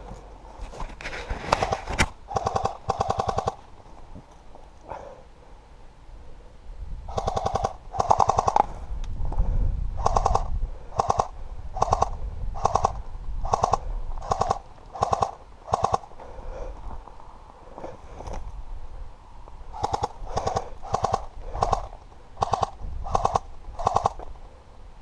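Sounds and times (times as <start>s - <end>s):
airsoft gun firing bursts: 1.6s - 3.6s, 7.1s - 8.7s, 10.0s - 16.1s, 19.7s - 24.2s.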